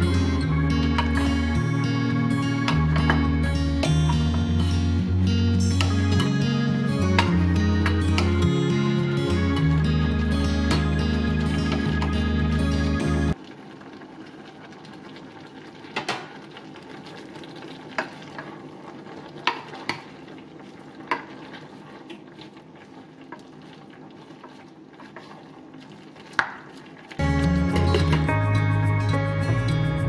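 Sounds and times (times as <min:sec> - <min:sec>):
low sizzle: 0:00.0 - 0:30.0
wooden spatula stirring: 0:19.3 - 0:27.2.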